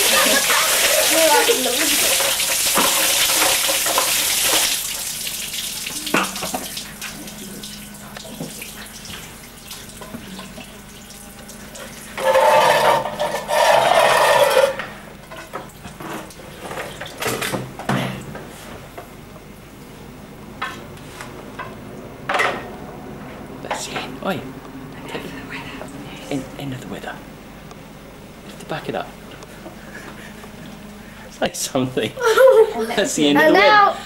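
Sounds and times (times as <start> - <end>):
water dripping: 0.0 - 12.1
water splashing from bucket: 0.0 - 13.5.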